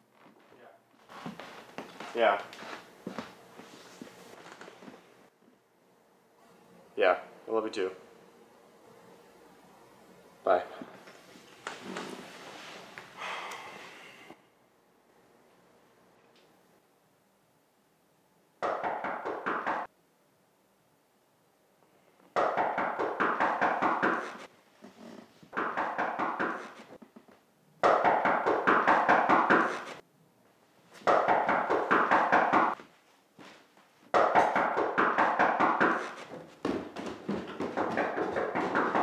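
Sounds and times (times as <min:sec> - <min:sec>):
rapid knocking on a door: 0:34.2 - 0:39.0.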